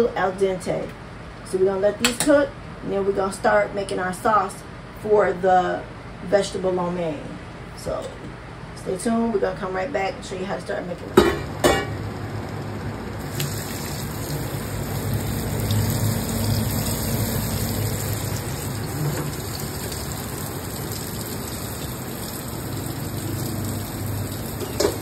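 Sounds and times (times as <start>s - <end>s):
water spraying into a sink: 13.2s - 25.0s.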